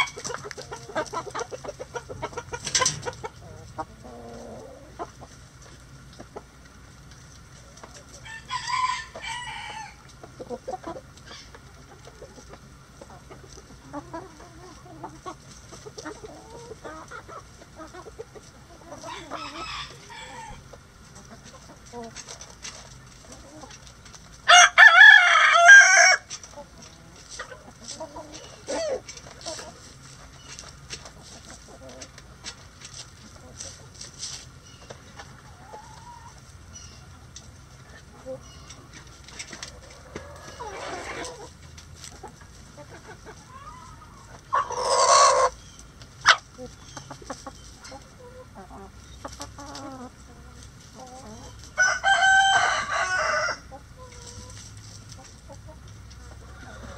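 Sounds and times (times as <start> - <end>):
hens clucking: 0.0 - 56.9
rooster crowing: 8.2 - 10.0, 19.1 - 20.6, 24.5 - 26.2, 51.8 - 53.7.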